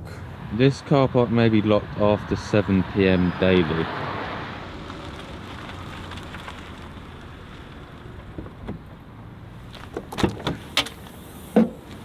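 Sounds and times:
low traffic noise: 0.0s - 12.0s.

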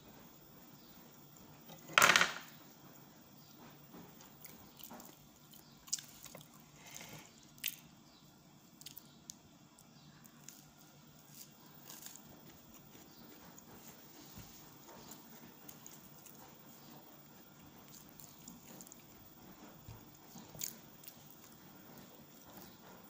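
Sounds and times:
person chewing with wet mouth sounds: 8.8s - 22.8s.

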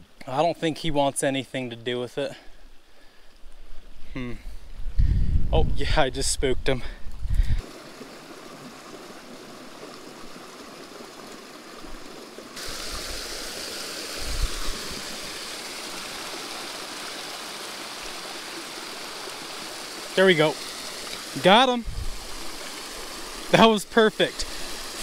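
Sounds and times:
creek water splashing over stones: 7.6s - 25.0s.

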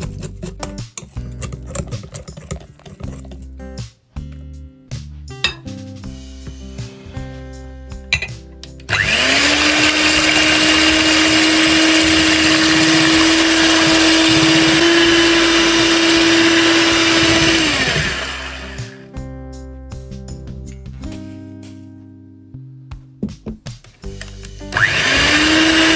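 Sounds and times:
electric hand mixer running: 8.9s - 19.0s, 24.7s - 25.9s.

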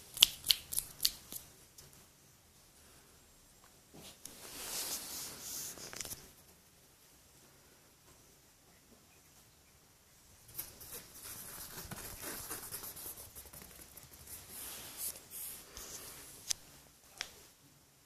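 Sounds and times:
kitten claws scratching fabric: 10.5s - 15.2s.

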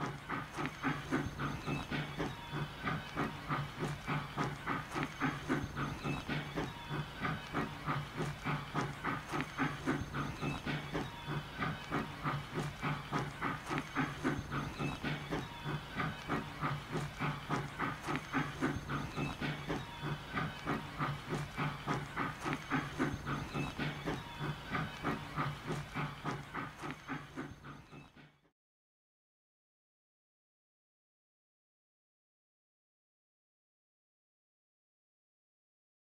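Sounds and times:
steam hissing: 0.0s - 28.3s
steam locomotive chuffing: 0.0s - 28.5s.

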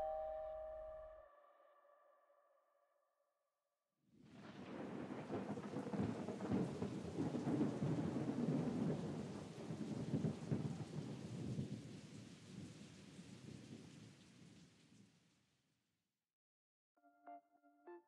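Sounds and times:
rain: 4.2s - 15.6s
rumbling crackling thunder: 4.3s - 15.1s.

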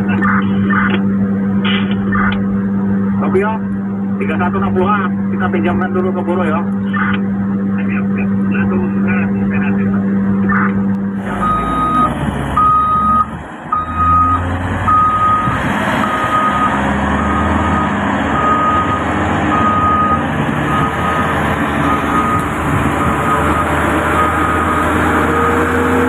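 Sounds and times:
diesel engine running: 0.0s - 26.0s
reversing alarm beeping: 11.3s - 25.9s.

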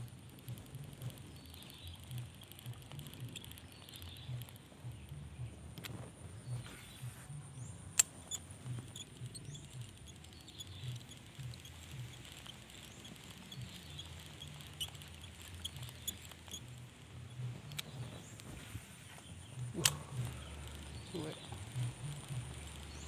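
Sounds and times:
fishing reel ticking: 0.0s - 18.5s, 19.3s - 23.0s
sharp click: 7.9s - 16.7s, 19.6s - 22.9s.

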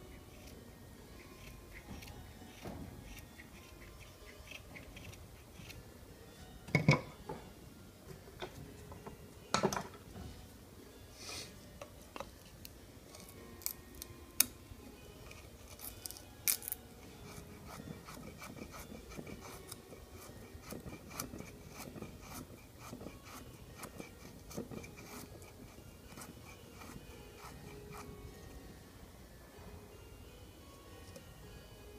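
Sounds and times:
knife scraping wooden stick: 1.2s - 5.8s, 15.2s - 28.1s.

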